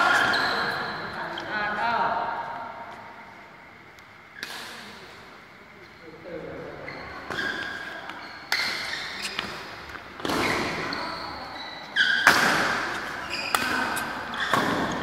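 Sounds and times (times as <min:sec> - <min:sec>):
court shoes squeaking: 0:00.0 - 0:01.6, 0:04.3 - 0:05.1, 0:06.7 - 0:15.0
rackets hitting shuttlecock: 0:07.3 - 0:11.0, 0:12.0 - 0:15.0.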